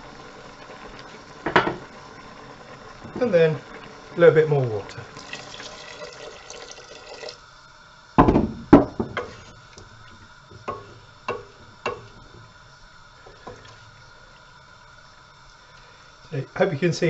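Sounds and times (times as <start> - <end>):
water pouring into a pot: 0.0 - 7.6, 8.8 - 16.2
loud knocks: 8.2 - 9.3
wooden spoon knocking steel pot: 10.6 - 12.4.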